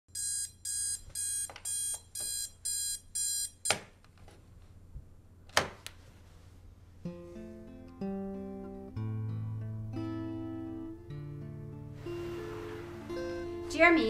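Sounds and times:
alarm clock beeping: 0.1 - 3.7.

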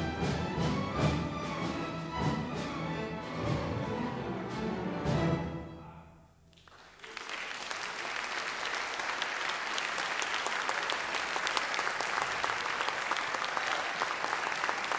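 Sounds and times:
audience applauding: 6.6 - 14.9.

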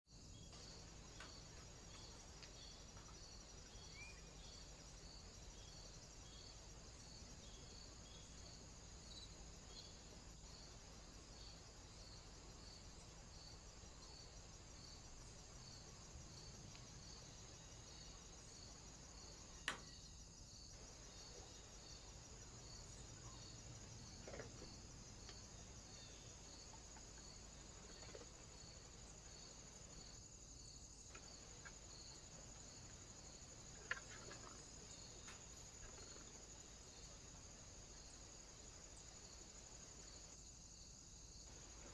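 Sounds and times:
faint high-pitched pulsing hiss: 0.1 - 41.9.

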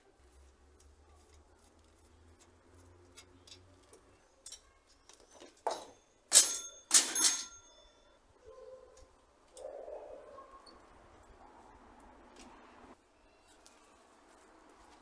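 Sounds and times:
metal clanks and rattles: 5.4 - 8.0.

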